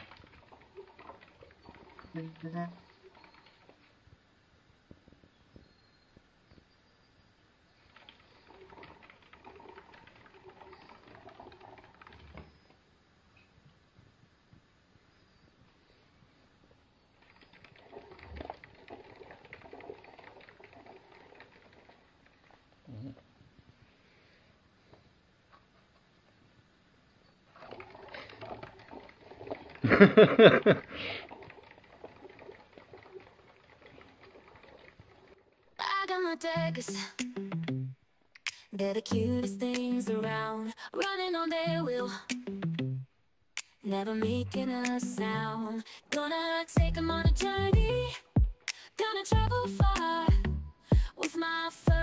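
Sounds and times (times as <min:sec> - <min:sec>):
rodent clicking and rustling: 0:00.0 - 0:03.9, 0:07.8 - 0:12.7, 0:17.2 - 0:22.6, 0:27.6 - 0:29.8, 0:31.2 - 0:35.4
short hiss: 0:48.6 - 0:49.1.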